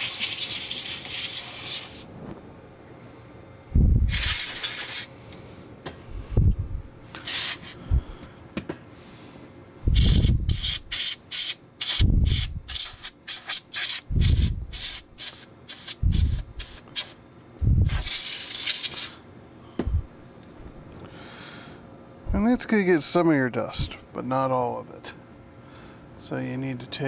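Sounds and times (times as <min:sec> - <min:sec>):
low rumbles: 0:03.7 - 0:04.1, 0:06.1 - 0:07.0
compressed air puffs: 0:03.7 - 0:19.2.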